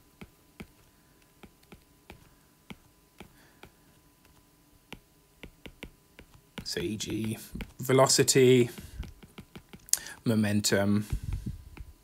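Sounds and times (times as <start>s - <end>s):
stylus tapping on glass screen: 4.9s - 7.8s, 8.8s - 10.0s.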